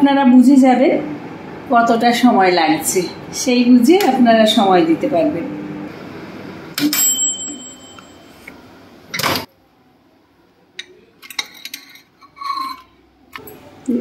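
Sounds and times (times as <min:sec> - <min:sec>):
microwave timer bell ding: 0:06.8 - 0:08.5.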